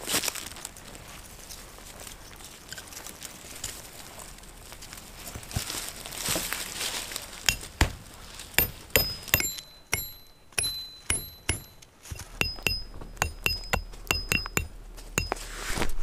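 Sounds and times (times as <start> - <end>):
hatchet striking metal tent stake: 7.4 - 8.0, 8.6 - 15.5.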